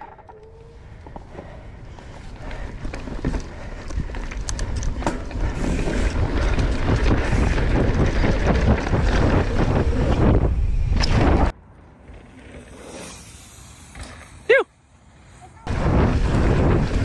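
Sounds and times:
bike rattles and knocks: 0.0 - 12.7
bike tyres rolling over dirt: 0.0 - 17.0
wind over microphone: 0.6 - 11.6, 15.6 - 17.0.

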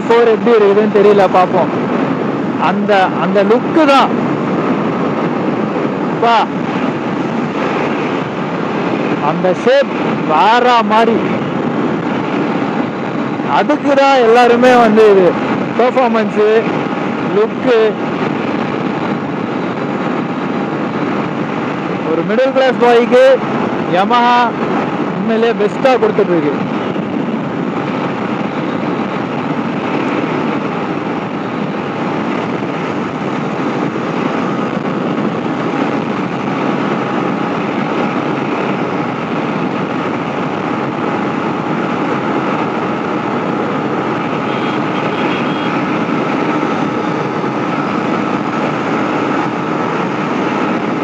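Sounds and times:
wind rushing over microphone: 0.0 - 51.0
motorcycle engine cruising: 26.7 - 51.0.

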